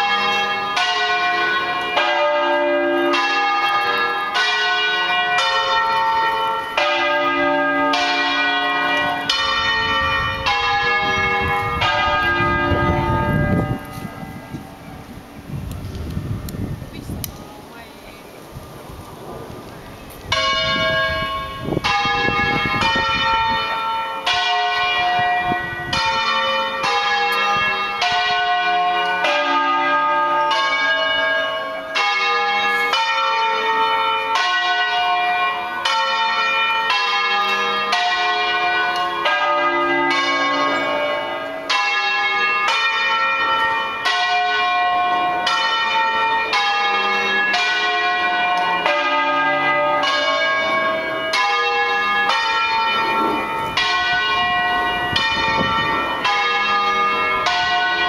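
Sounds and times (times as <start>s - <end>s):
church bells ringing: 0.0s - 15.5s, 19.1s - 58.0s
wind rumble: 7.9s - 26.3s, 53.0s - 56.4s.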